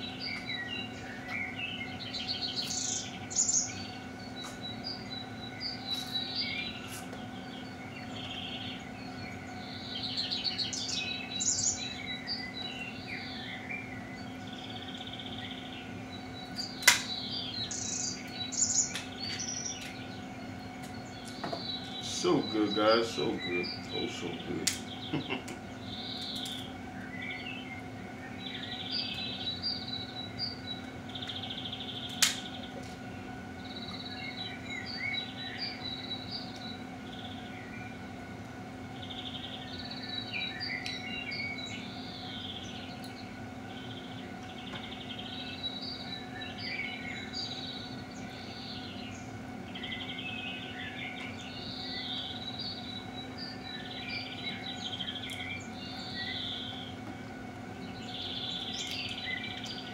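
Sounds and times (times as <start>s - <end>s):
birds chirping: 0.0s - 59.9s
steady low hum: 0.0s - 59.9s
sharp crack: 32.2s - 32.5s.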